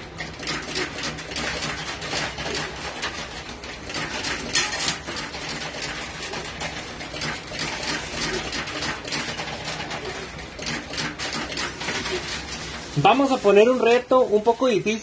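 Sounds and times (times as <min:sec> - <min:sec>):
coins clinking in arcade machine: 0:03.8 - 0:12.3.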